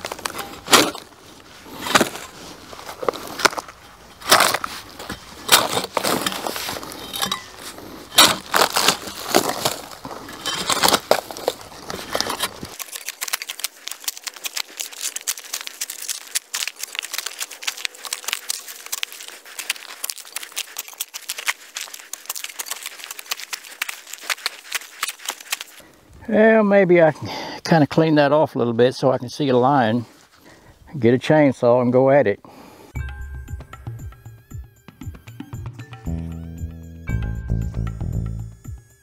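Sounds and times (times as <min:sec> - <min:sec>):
bark crunching and tearing: 0:00.0 - 0:26.0.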